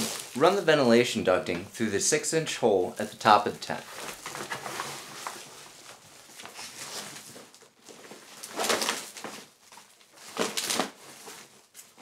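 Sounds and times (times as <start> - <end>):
foil ducting crinkling and rustling: 0.0 - 0.8, 3.2 - 12.0.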